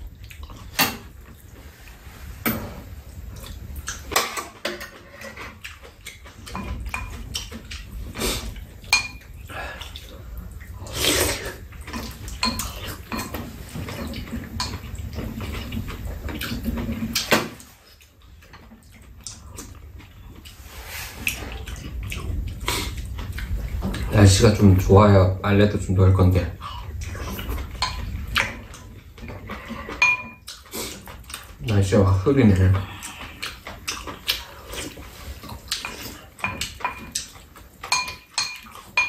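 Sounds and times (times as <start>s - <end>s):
utensils clinking against bowls: 4.0s - 7.6s, 8.9s - 9.3s, 11.9s - 15.7s, 27.3s - 30.5s, 34.7s - 39.0s.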